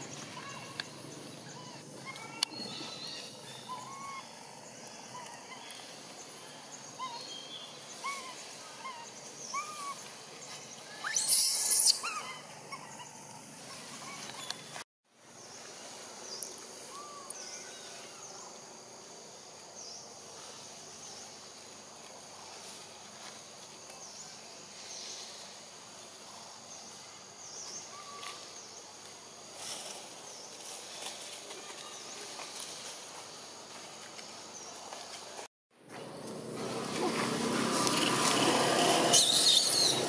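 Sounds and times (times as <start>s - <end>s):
steady background hiss: 0.0s - 35.4s
leaves rustling: 20.3s - 40.0s.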